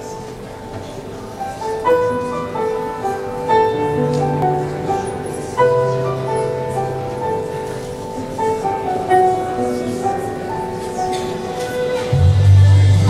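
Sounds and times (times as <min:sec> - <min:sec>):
keyboard chords over bass: 0:12.1 - 0:13.0.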